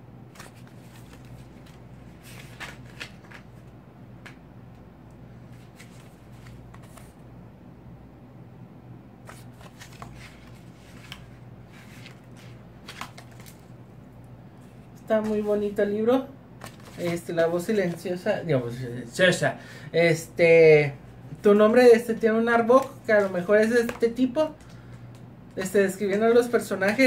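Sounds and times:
low steady hum: 0.0s - 27.0s
book pages turning: 0.3s - 4.4s, 5.4s - 7.2s, 9.2s - 13.7s, 14.6s - 15.7s, 16.6s - 18.0s, 21.4s - 25.6s.

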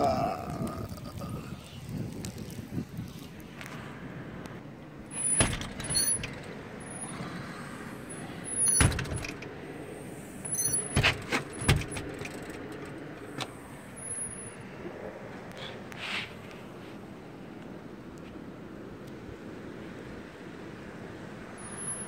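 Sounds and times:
door hardware squeaks: 5.0s - 7.4s, 8.1s - 9.6s, 10.3s - 13.2s
metal door knocks and rattles: 5.1s - 6.5s, 8.6s - 9.5s, 10.7s - 12.7s.

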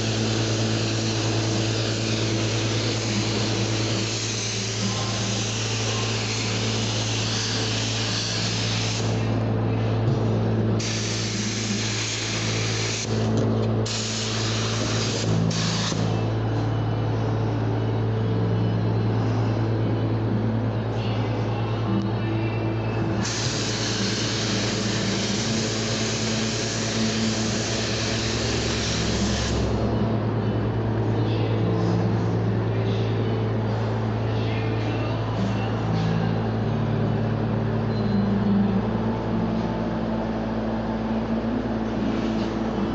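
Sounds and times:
shop machine hum: 0.0s - 42.9s
ventilation drone: 0.0s - 42.9s
air hiss bursts: 10.8s - 13.2s, 13.9s - 16.0s, 23.2s - 29.7s.

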